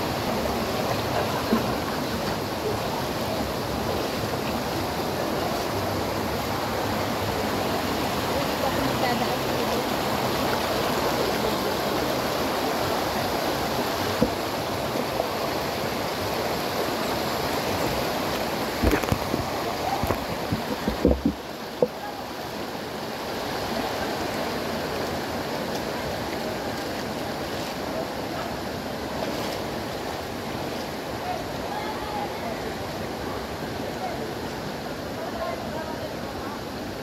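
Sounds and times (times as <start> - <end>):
stream running over stones: 0.0 - 37.0
sharp knocks and thumps: 20.1 - 21.9.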